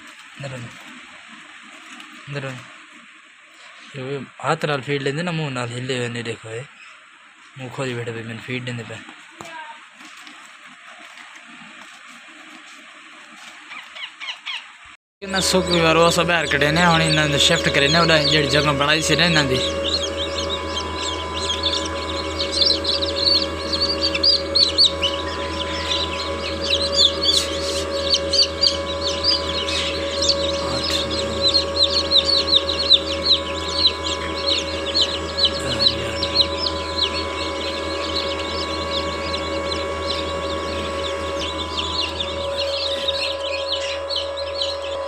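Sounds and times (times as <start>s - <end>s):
incubator hum: 0.0s - 9.8s, 15.2s - 45.0s
chicks peeping: 0.1s - 1.0s, 1.8s - 2.6s, 13.3s - 45.0s.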